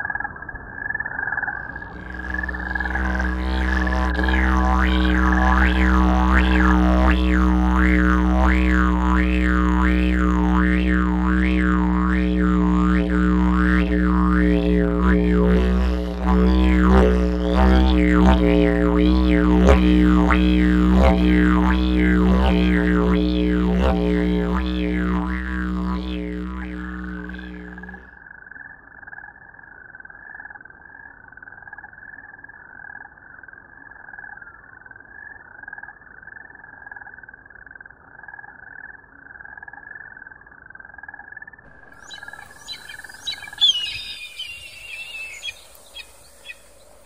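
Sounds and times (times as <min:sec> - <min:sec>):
didgeridoo drone: 0:01.6 - 0:28.2
steady repeated chirping: 0:41.8 - 0:47.0.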